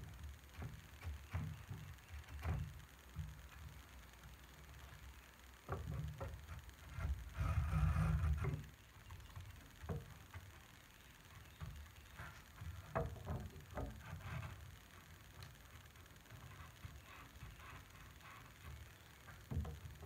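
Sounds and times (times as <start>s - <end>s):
block plane scraping wood: 6.8s - 8.8s.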